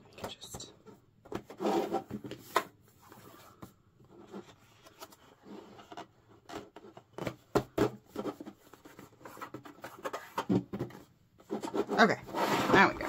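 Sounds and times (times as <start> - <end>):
hands scraping plastic toy: 1.4 - 3.6, 8.1 - 13.0.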